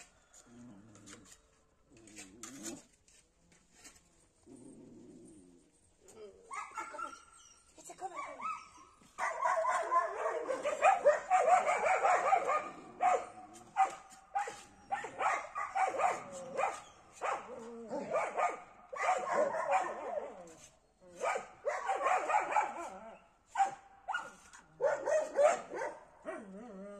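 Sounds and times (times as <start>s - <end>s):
small dogs barking and yipping: 6.4s - 26.6s.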